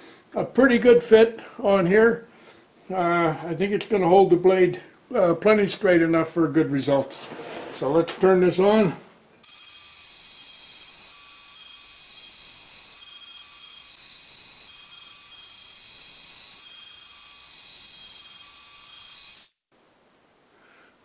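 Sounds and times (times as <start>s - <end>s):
disc sander grinding metal: 9.4s - 19.5s.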